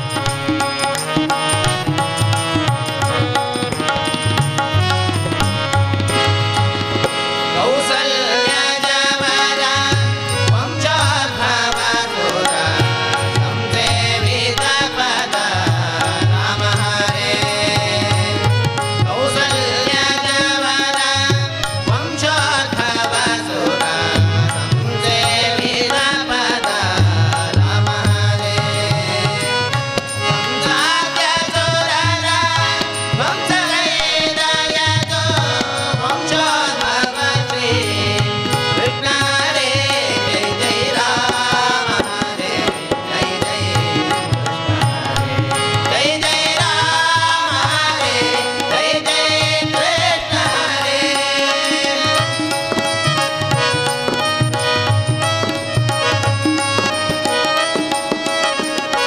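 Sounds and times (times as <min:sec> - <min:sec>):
harmonium: 0:00.0 - 0:59.0
men singing: 0:00.0 - 0:59.0
tabla rhythm: 0:00.0 - 0:59.0.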